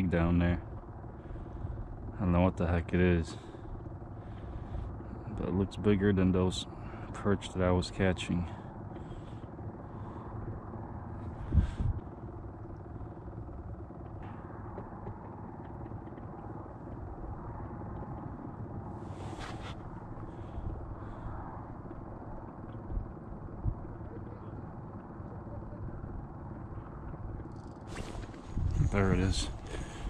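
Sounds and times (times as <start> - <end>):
wind rumble on microphone: 9.0 - 30.0.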